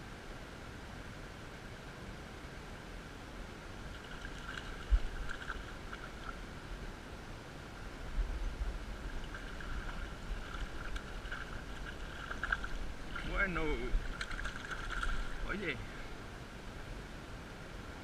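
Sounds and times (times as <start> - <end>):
river water gurgling: 0.0 - 18.0
fish splashing: 3.9 - 6.4, 9.0 - 15.4.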